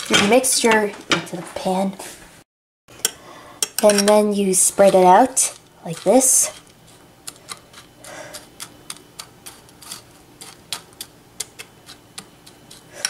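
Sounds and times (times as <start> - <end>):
metal spoon scraping ceramic dish: 3.6 - 4.2.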